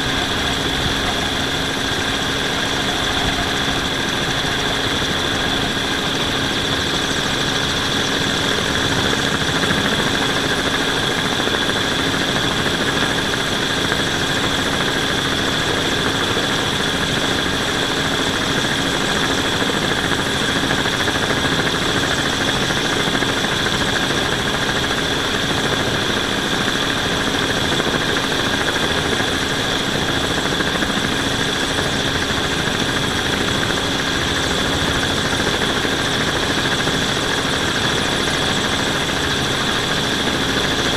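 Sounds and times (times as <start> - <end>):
drone propellers whining: 0.0 - 10.5.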